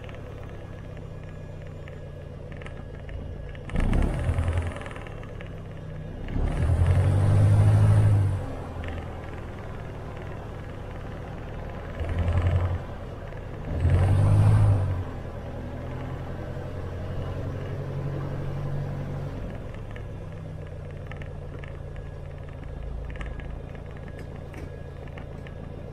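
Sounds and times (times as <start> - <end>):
light aircraft engine running: 0.0 - 25.9
faint rattling ticks: 8.8 - 13.7.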